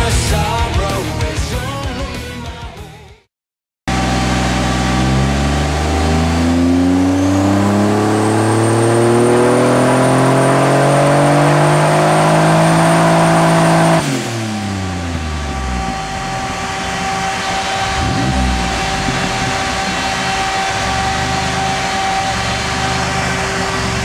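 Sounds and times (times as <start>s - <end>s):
engine revving: 3.9s - 24.0s
turbo whistle: 5.8s - 24.0s.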